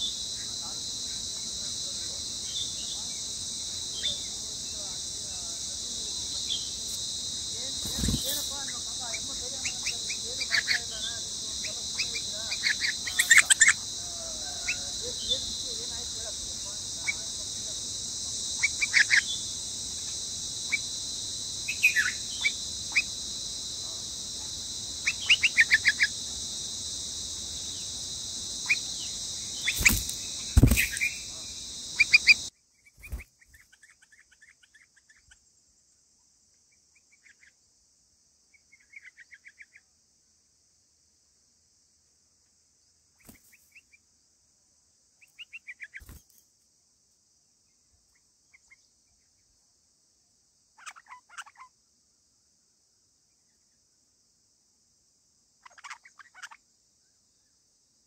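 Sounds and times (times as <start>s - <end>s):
high insect drone: 0.0s - 58.0s
bird chirping: 9.1s - 13.8s, 21.7s - 23.2s, 25.0s - 26.1s, 28.6s - 35.4s.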